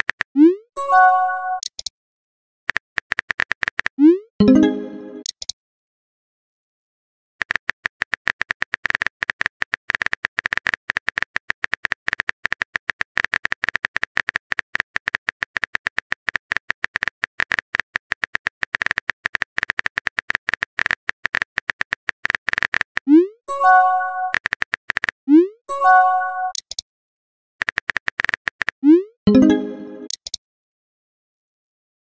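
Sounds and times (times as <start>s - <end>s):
keyboard typing clicks: 1.5s - 1.9s, 2.7s - 5.6s, 7.4s - 25.2s, 25.9s - 26.8s, 27.6s - 30.4s.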